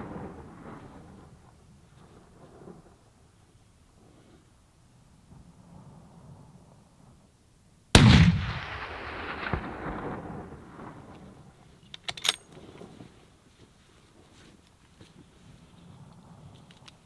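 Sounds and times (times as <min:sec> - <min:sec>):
rifle shot echoing: 0:07.9 - 0:11.6
metallic rifle action clicks: 0:11.8 - 0:12.6.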